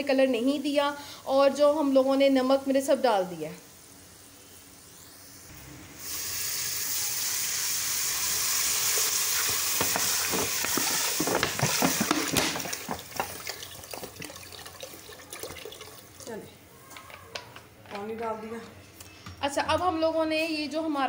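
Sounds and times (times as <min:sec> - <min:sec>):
hot oil sizzling: 0:01.7 - 0:16.2
water splashing: 0:09.4 - 0:16.3.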